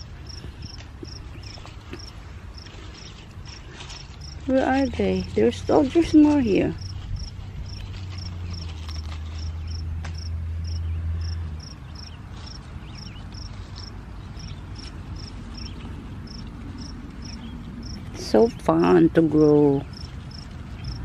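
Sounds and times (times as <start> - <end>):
cricket chirping: 0.0 - 4.4, 6.8 - 15.7, 16.3 - 18.0, 19.9 - 21.0.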